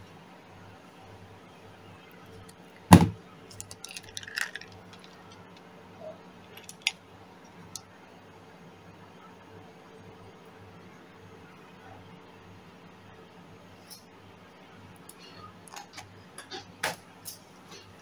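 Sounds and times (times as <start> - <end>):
sharp knock: 2.9 - 3.2
fishing tackle rattling in plastic lid: 3.6 - 5.4.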